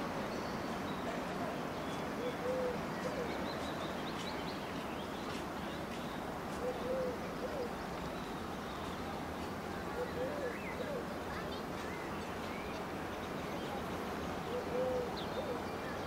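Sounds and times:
small birds chirping: 0.2s - 16.0s
pigeon cooing: 2.2s - 3.3s, 6.6s - 7.7s, 10.0s - 11.1s, 14.5s - 15.6s.

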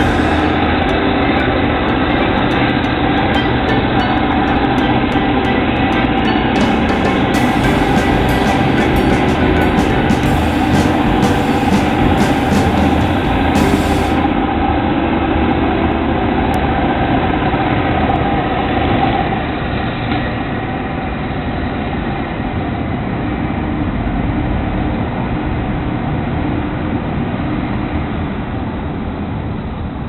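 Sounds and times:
demolition machine engine running: 0.0s - 16.3s.

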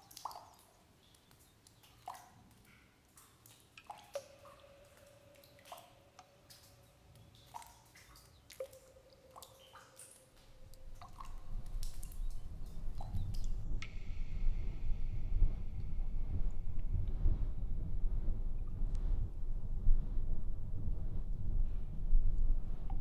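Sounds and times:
water drops plinking: 3.7s - 14.5s
low rumble: 10.4s - 23.0s.

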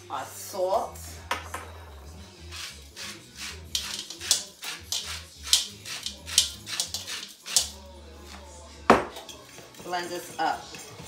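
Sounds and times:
salt grinder grinding: 2.5s - 7.8s.

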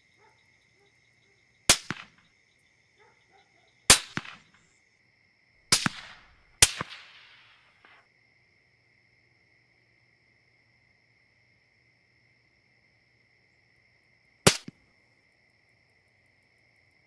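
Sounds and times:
rifle shots: 1.7s - 2.2s, 3.9s - 4.6s, 5.7s - 7.9s, 14.5s - 14.7s
faint echo report: 5.8s - 8.0s.

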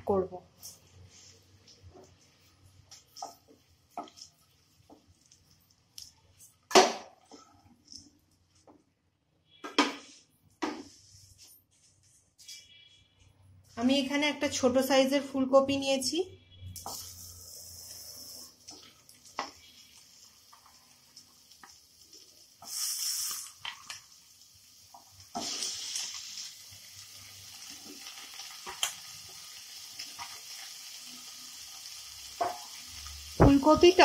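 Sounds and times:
vegetables sizzling in oil: 16.8s - 34.0s.

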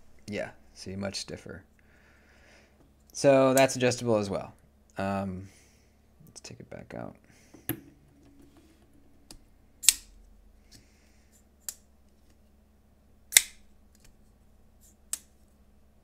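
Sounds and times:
folding knife snapping open: 13.3s - 14.1s.

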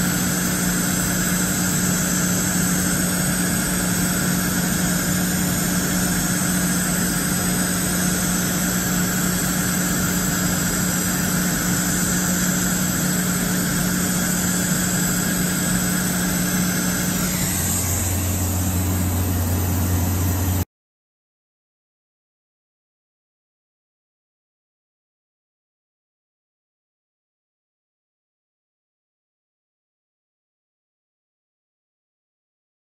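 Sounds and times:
machining center humming and hissing: 0.0s - 20.6s.

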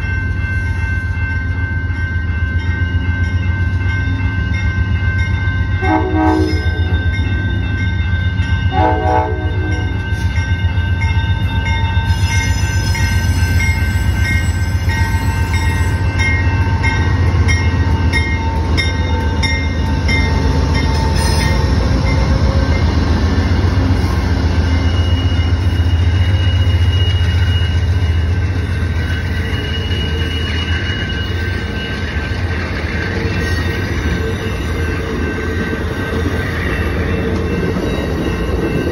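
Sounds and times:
crossing bell ringing: 0.0s - 38.9s
train wheels rolling: 0.0s - 38.9s
locomotive horn blast: 5.8s - 6.7s, 8.7s - 9.9s.

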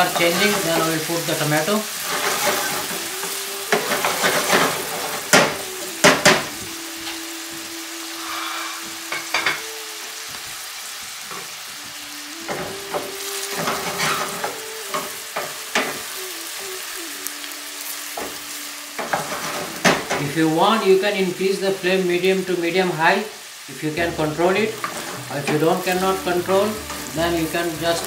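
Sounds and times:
wooden spatula scraping a pan: 0.0s - 6.5s, 12.5s - 16.0s, 19.0s - 20.3s, 24.7s - 28.0s
onions sizzling in a pan: 0.0s - 28.0s.

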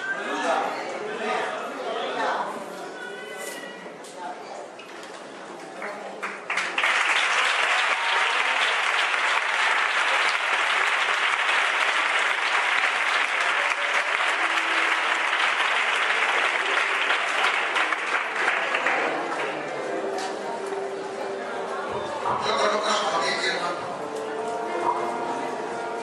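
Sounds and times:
crowd applauding: 5.8s - 19.9s.

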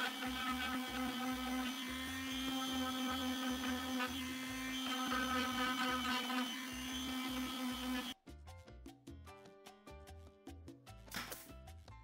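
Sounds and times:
electric sander running: 0.0s - 8.2s.

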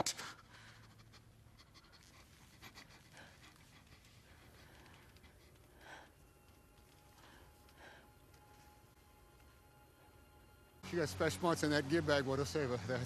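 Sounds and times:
heavy breathing: 0.0s - 8.9s.

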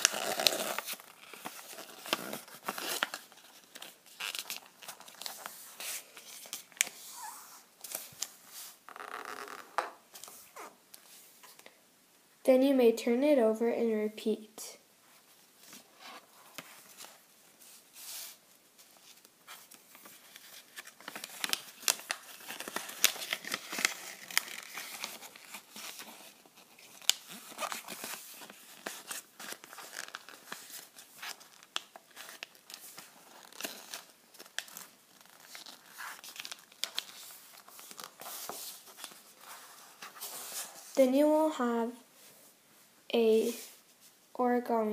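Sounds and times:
paper crinkling and rustling: 0.0s - 8.8s, 15.6s - 41.0s.

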